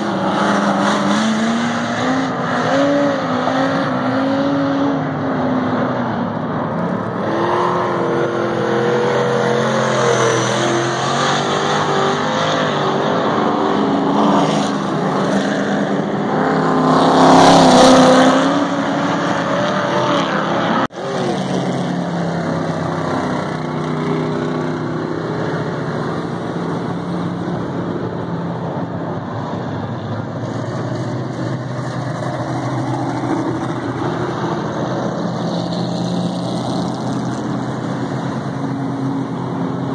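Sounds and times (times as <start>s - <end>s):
racing car engines: 0.0s - 39.9s.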